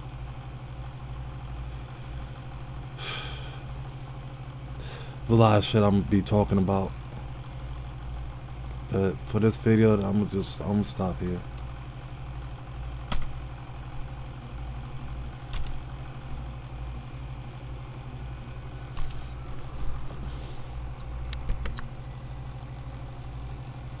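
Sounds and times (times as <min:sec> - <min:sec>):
steady low hum: 0:00.0 - 0:24.0
computer mouse clicks: 0:21.3 - 0:21.9.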